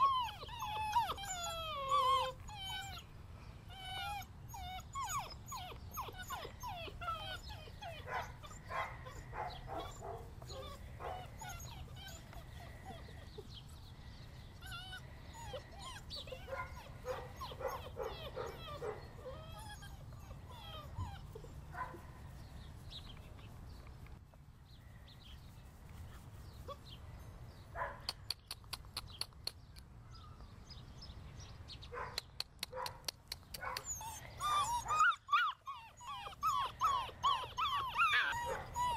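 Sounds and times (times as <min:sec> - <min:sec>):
puppy yips: 0:00.0 - 0:03.0, 0:03.7 - 0:09.2, 0:33.6 - 0:38.9
puppies whining and whimpering: 0:00.0 - 0:21.7, 0:33.8 - 0:38.9
quick sharp clicks: 0:28.1 - 0:29.9.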